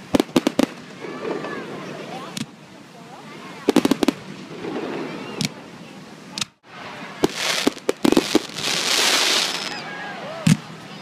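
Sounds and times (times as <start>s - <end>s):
fireworks bangs: 0.0s - 2.5s, 3.6s - 5.6s, 7.2s - 9.8s
fireworks crackle: 0.0s - 2.5s, 3.6s - 5.6s, 6.4s - 9.8s.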